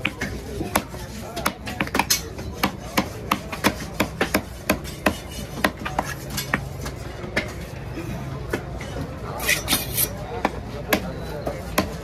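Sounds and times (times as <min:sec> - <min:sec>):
knife chopping on wooden block: 0:00.0 - 0:06.7.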